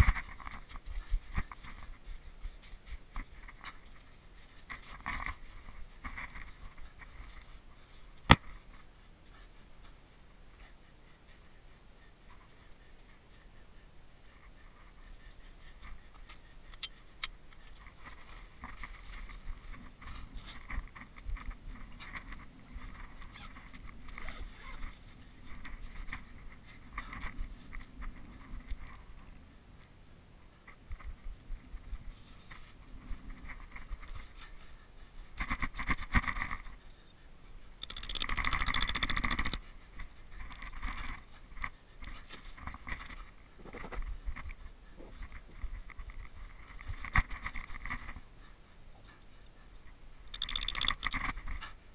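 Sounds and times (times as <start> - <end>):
sharp clicks: 37.8 - 39.6, 50.3 - 51.3.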